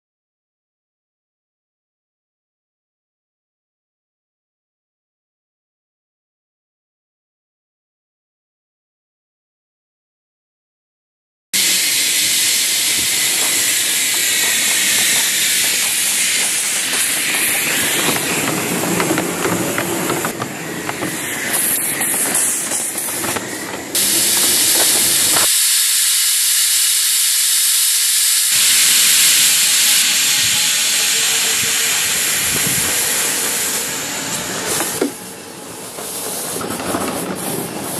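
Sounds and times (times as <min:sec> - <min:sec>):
steam hissing: 0:11.6 - 0:37.9.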